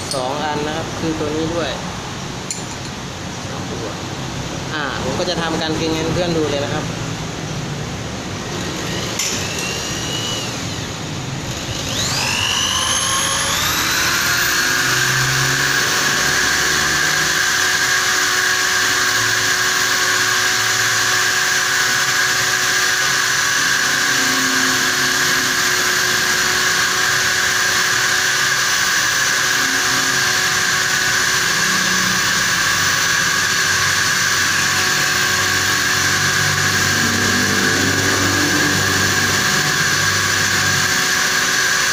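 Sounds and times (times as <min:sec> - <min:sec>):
electric drill motor whine: 0:08.3 - 0:41.9.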